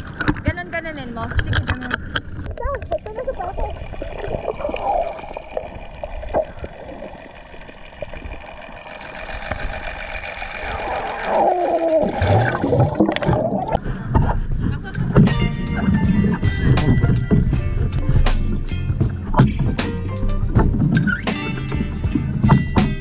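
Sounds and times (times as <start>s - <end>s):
muffled underwater gurgling: 1.2s - 18.2s
rush of bubbles: 2.5s - 13.8s.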